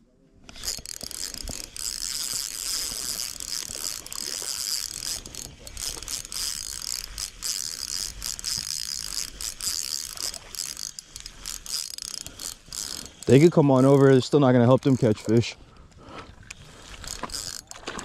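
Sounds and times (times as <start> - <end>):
fishing reel whirring: 0.4 - 15.4, 16.4 - 18.0.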